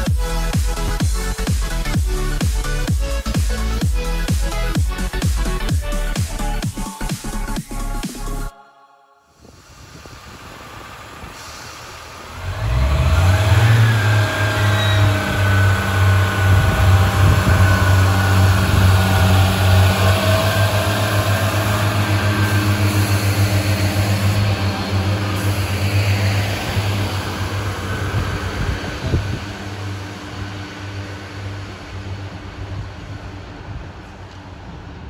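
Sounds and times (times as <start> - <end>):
train running with low hum: 0.0 - 8.5, 9.3 - 35.0
faint train whine: 9.4 - 35.0.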